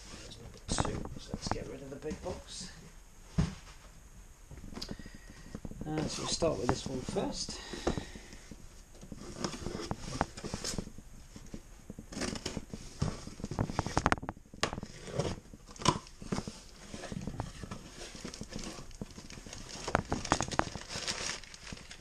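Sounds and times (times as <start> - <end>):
cardboard boxes handled and cut open: 5.8 - 8.2, 9.0 - 14.1, 14.8 - 22.0.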